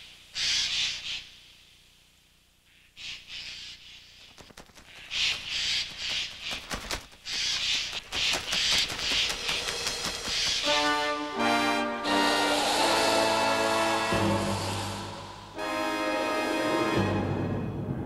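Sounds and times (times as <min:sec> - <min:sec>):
crows cawing: 0:04.8 - 0:10.9.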